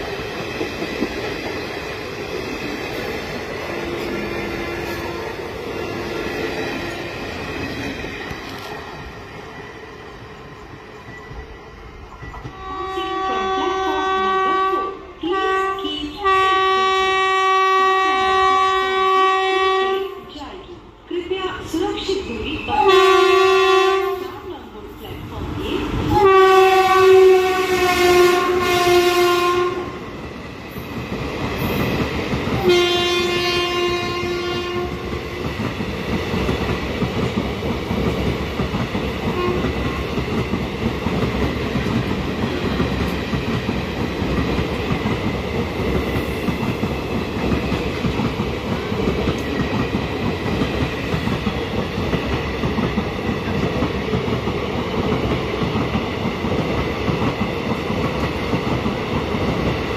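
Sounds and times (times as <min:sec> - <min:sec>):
train coaches rumbling and clacking: 0:00.0 - 0:59.9
locomotive horn blasts: 0:12.5 - 0:20.2, 0:22.8 - 0:24.2, 0:26.1 - 0:30.0, 0:32.6 - 0:35.0, 0:39.3 - 0:39.7.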